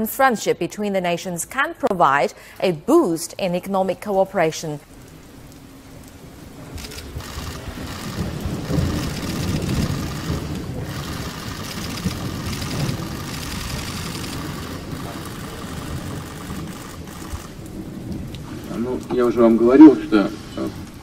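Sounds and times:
camera shutters clicking: 0:06.8 - 0:17.6.

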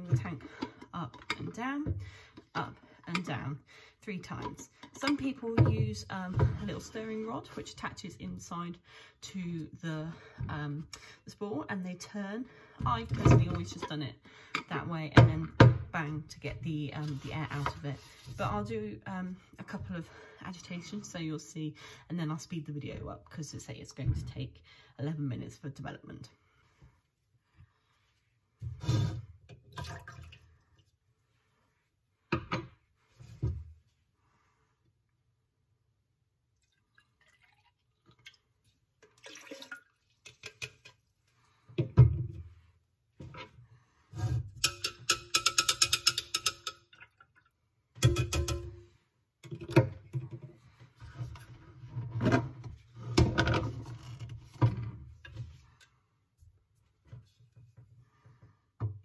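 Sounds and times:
liquid splashing in plastic jug: 0:29.6 - 0:30.9, 0:36.6 - 0:41.0, 0:46.9 - 0:47.6
tank lid knocks and handling: 0:48.0 - 0:48.8.

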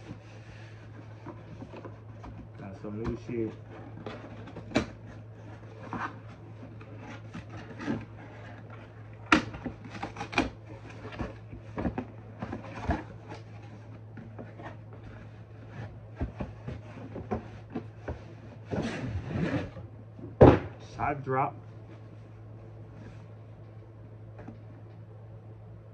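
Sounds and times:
cardboard box scraping and rubbing: 0:03.2 - 0:19.9.

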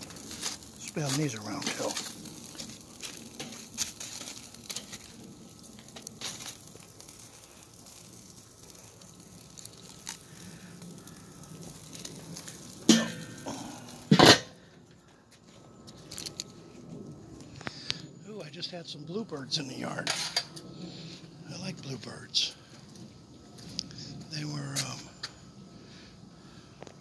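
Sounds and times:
meat sizzling on grill: 0:00.0 - 0:14.4
metal lid clanking down: 0:12.9 - 0:13.3, 0:14.1 - 0:14.6.

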